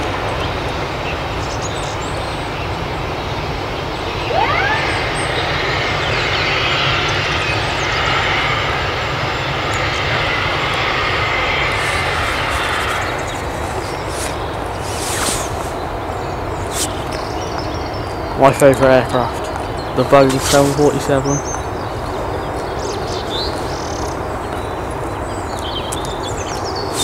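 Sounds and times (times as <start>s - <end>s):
jet engines running: 0.0s - 27.0s
short rising whistle: 4.2s - 7.0s.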